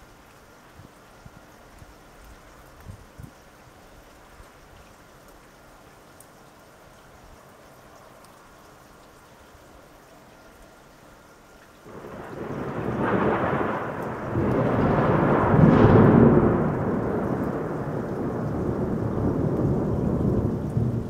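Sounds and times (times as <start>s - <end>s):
thunder rumbling: 11.9s - 21.0s.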